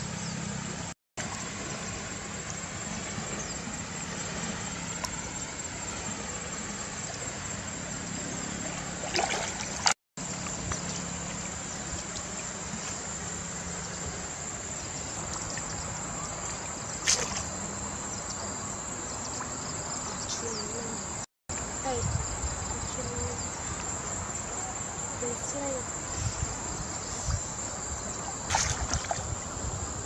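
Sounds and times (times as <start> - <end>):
river water flowing: 1.2 - 20.5, 22.7 - 30.0
net splashing in water: 8.7 - 10.0, 16.5 - 17.7, 28.2 - 29.5.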